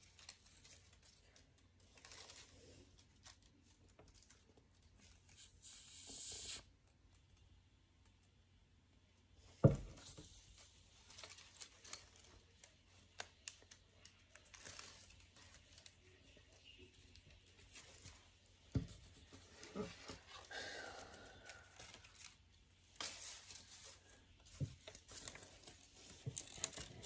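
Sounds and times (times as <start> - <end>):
paper rustling: 0.0 - 5.6, 10.0 - 18.4, 21.6 - 27.0.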